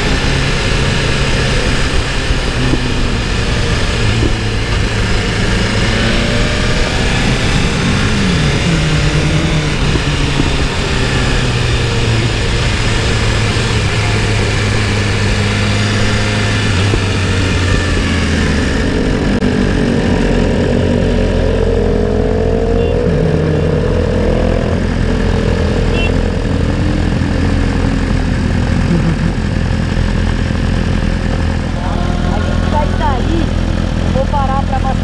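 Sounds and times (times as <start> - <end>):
motorcycle engine revving: 0.0 - 35.0
motorcycle engine running: 0.0 - 35.0
motorcycle engines idling: 24.8 - 35.0.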